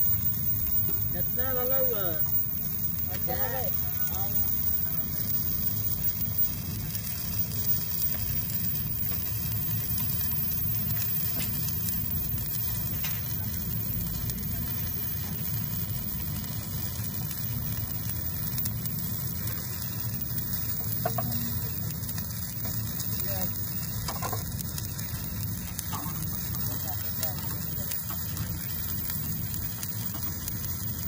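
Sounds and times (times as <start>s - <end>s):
low hum: 0.0s - 11.2s
welding arc crackling: 0.0s - 31.0s.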